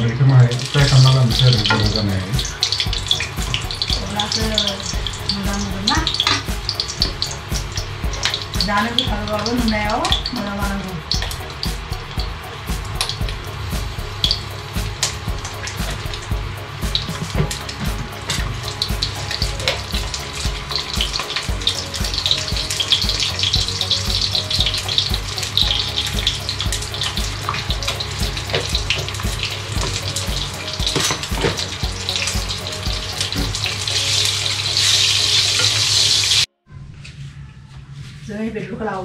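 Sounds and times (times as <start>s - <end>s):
tap water running into sink: 0.0s - 36.5s.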